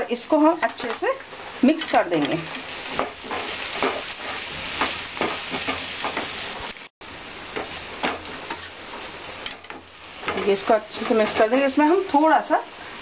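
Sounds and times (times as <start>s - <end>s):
pumpkin sizzling in oil: 0.0s - 13.0s
wooden spatula scraping a pan: 1.6s - 6.7s, 7.5s - 11.9s.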